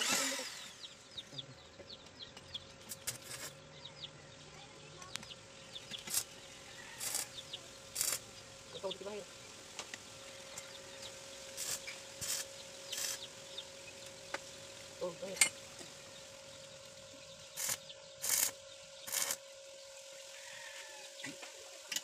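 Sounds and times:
welding arc bursts: 0.0s - 1.2s, 5.9s - 6.4s, 7.0s - 9.2s, 10.6s - 14.2s, 17.5s - 19.4s.

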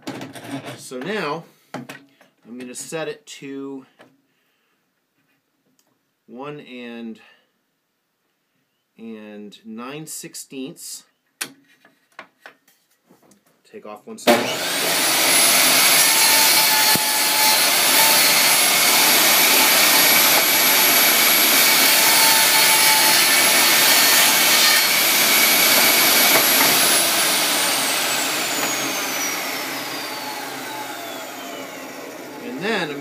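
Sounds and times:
saw blade spinning down: 14.3s - 33.0s
table saw cutting wood: 14.3s - 33.0s.

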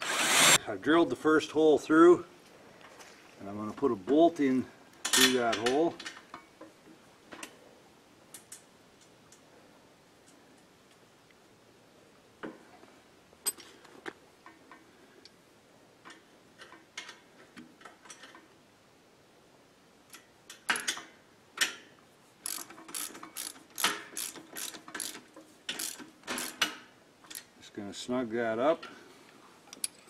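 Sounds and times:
socket ratchet wrench clicking: 22.4s - 27.4s.

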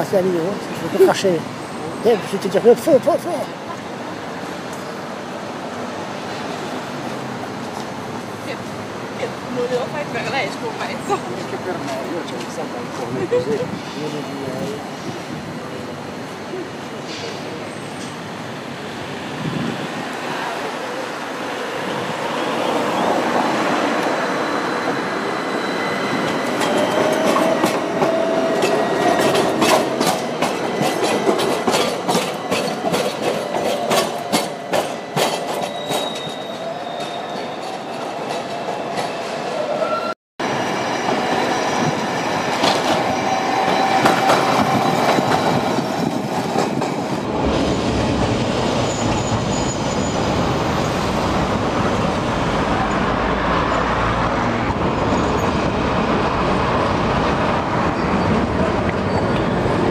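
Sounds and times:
tram passing: 0.0s - 59.9s
tram wheels squealing and clicking: 21.2s - 52.1s, 52.7s - 59.9s.

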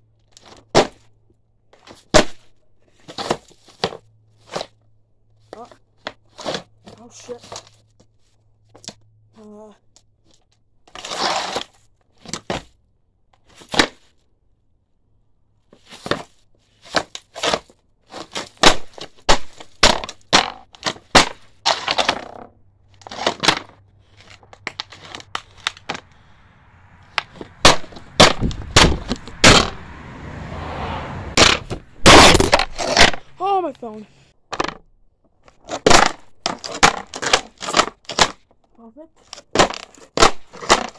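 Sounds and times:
board scraping along ground: 1.8s - 4.8s, 5.5s - 8.4s, 10.9s - 12.7s, 15.6s - 26.4s, 27.0s - 33.4s
board knocking on pavement: 27.1s - 29.8s, 31.4s - 33.2s.

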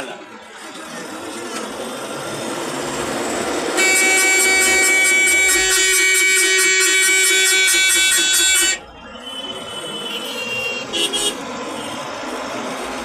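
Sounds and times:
road traffic noise: 0.0s - 13.0s
vehicle horn blaring: 3.8s - 11.9s.

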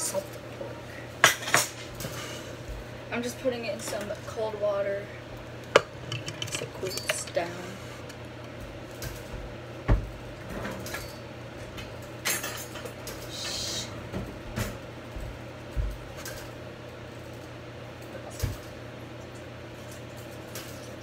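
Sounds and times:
steady low hum: 0.0s - 21.0s
kitchen knocks and clatter: 5.7s - 7.4s.

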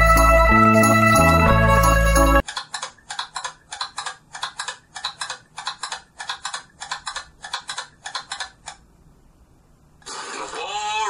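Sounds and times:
sharp clicks: 2.4s - 8.8s.

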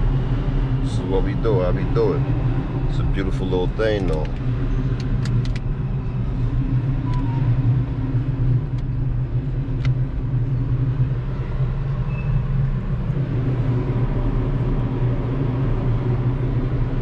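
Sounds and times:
car interior rumble: 0.0s - 17.0s
city traffic: 0.0s - 17.0s.

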